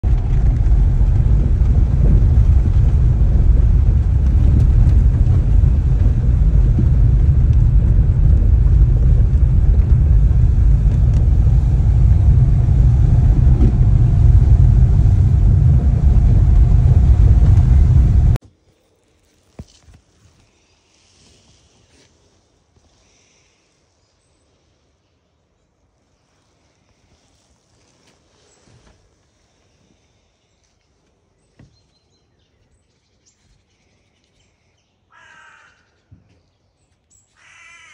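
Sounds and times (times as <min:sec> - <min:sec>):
car rumbling on dirt road: 0:00.0 - 0:18.4.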